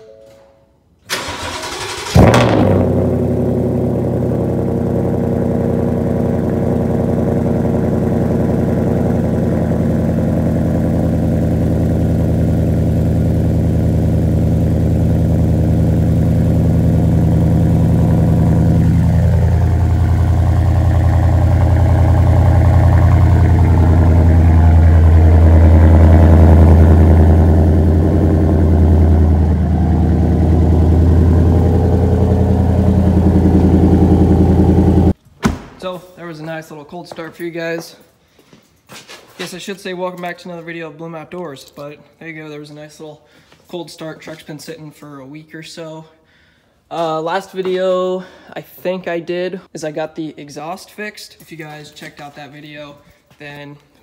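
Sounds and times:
truck engine idling: 1.2s - 35.2s.

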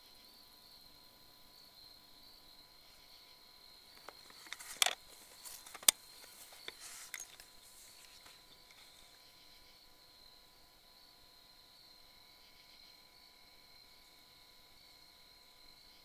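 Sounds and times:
steady high whine: 2.8s - 11.2s
rustling: 4.0s - 9.2s.

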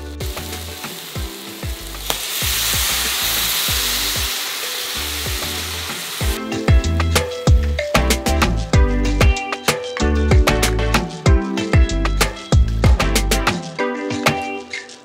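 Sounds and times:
water sizzling in hot pan: 0.0s - 6.4s
background music with steady beat: 0.0s - 15.0s.

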